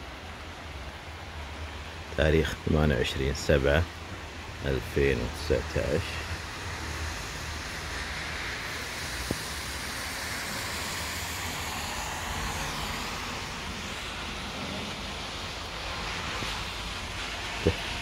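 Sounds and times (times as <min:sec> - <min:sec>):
rain falling: 0:00.0 - 0:18.0
car tyres swishing on wet road: 0:05.8 - 0:18.0.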